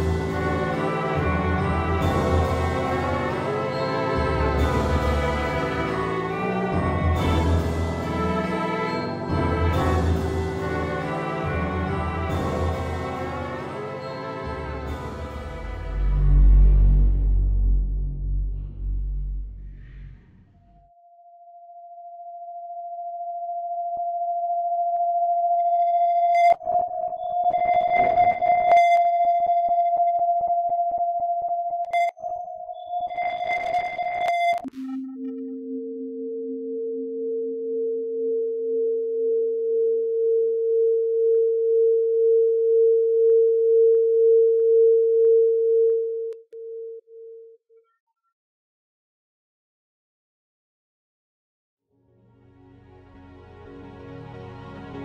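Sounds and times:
steady electronic tone: 15.4 - 21.2
electronic sine-tone drone: 15.6 - 46.4.

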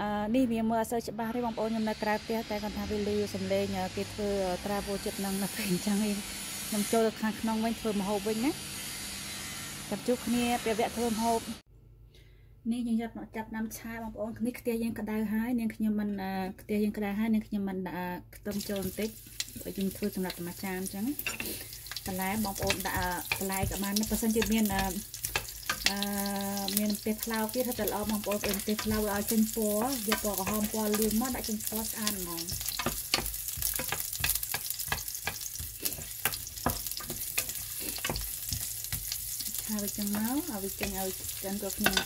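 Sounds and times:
onion sizzling in oil: 1.2 - 11.6, 18.5 - 42.0
spatula scraping a pan: 21.2 - 42.0
person speaking: 25.9 - 32.5.

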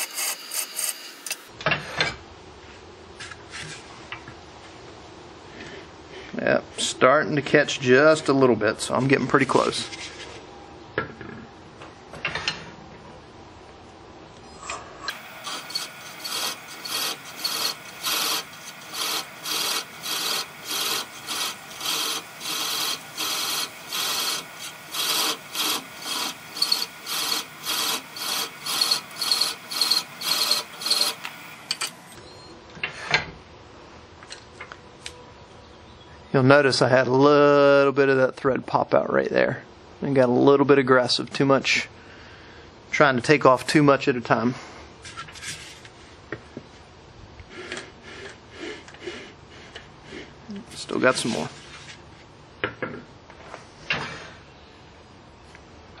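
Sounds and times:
thread chaser scraping wood: 15.1 - 32.0.

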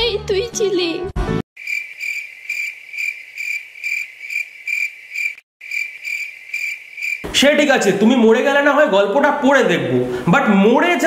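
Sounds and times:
cricket chirping: 1.6 - 7.3.

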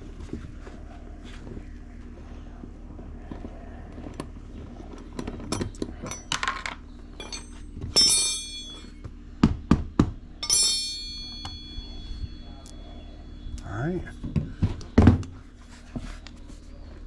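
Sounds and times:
metal hand tools clinking: 7.2 - 8.9, 10.4 - 12.0.

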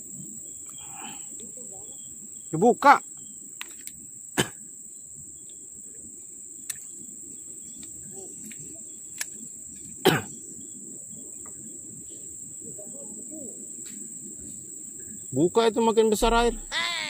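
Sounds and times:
insects droning: 0.0 - 17.0
low rumble: 16.2 - 16.8.

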